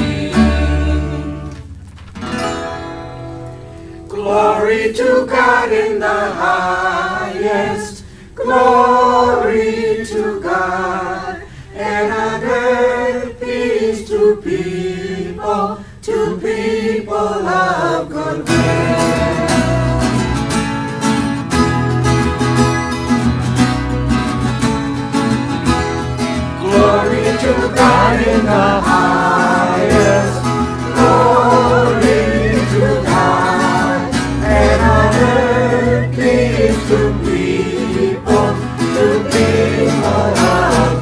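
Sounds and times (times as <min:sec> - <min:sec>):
song with singing voices: 0:00.0 - 0:01.8, 0:04.0 - 0:20.8, 0:26.5 - 0:41.0
strummed guitar: 0:00.0 - 0:04.2, 0:18.4 - 0:41.0.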